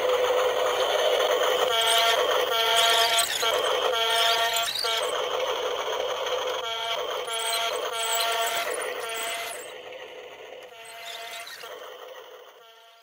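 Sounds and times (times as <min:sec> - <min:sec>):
repeated electronic tones: 0:06.5 - 0:09.8.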